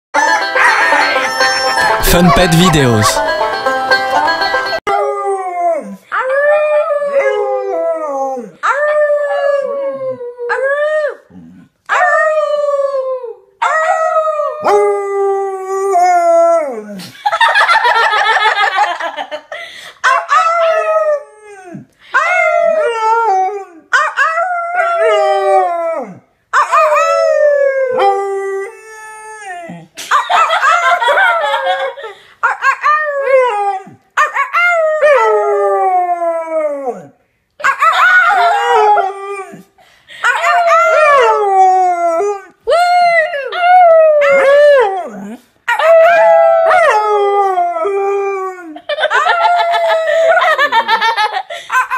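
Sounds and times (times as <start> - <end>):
dog howling: 37.7 - 39.6, 40.4 - 48.0.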